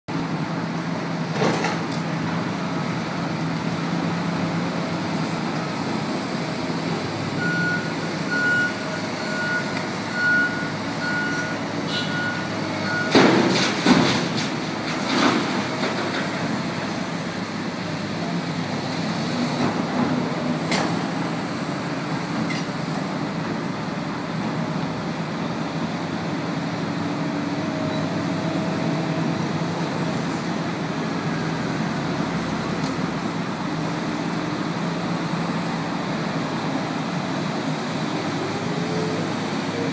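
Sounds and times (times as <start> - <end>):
excavator diesel engine: 0.1 - 39.9
reversing alarm beeping: 7.3 - 13.2.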